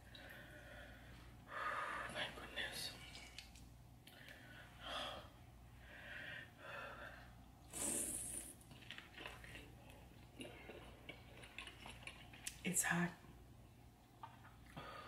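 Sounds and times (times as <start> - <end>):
woman breathing: 4.2 - 7.4
hissy sucking mouth sounds: 7.6 - 8.6
sharp slurp: 7.7 - 9.7.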